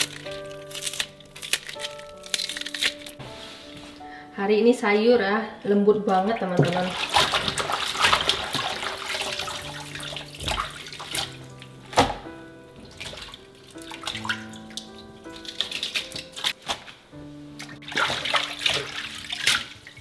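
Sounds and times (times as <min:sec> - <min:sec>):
background music: 0:00.0 - 0:20.0
water splashes and knocks: 0:06.1 - 0:17.0, 0:17.6 - 0:20.0
tap water running into sink: 0:06.5 - 0:11.3.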